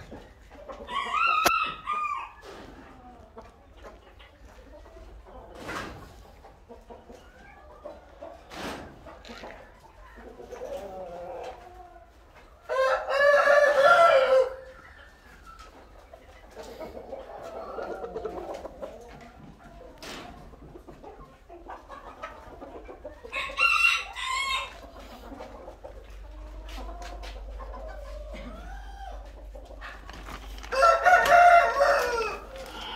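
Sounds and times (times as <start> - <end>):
chickens clucking: 0.0 - 32.9
rooster crowing: 12.7 - 14.7, 23.3 - 24.8, 30.7 - 32.9.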